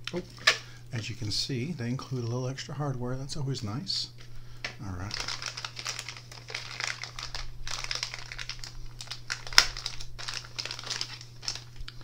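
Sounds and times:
plastic bag crinkling: 4.9s - 12.0s.

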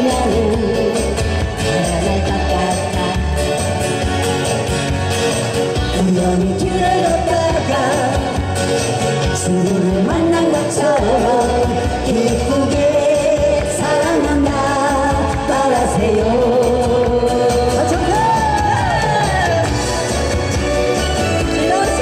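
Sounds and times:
man and woman singing: 0.0s - 3.6s, 5.9s - 8.5s, 9.4s - 19.8s, 21.4s - 22.0s.

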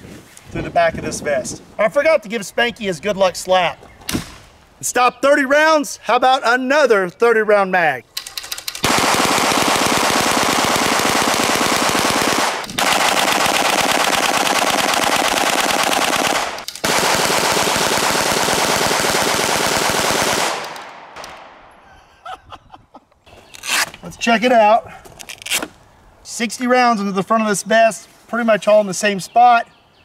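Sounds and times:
gatling gun firing bursts: 8.5s - 21.3s.

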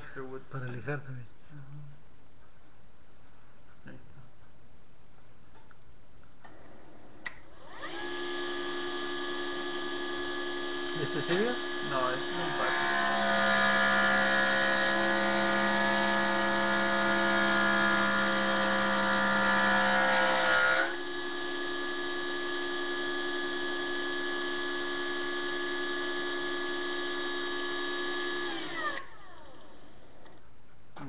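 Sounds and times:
electric power tool motor running: 7.5s - 30.2s.

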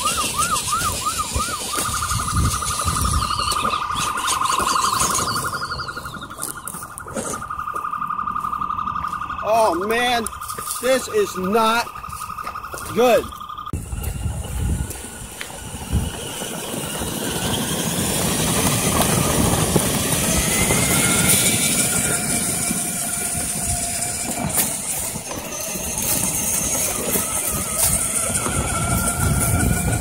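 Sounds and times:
toy truck motor whining: 0.0s - 7.5s, 13.7s - 30.0s
low rumble of running gear: 11.8s - 17.5s.

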